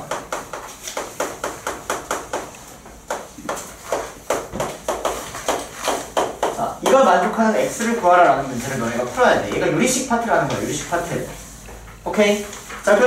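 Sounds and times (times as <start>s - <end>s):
chalk tapping on chalkboard: 0.0s - 13.0s.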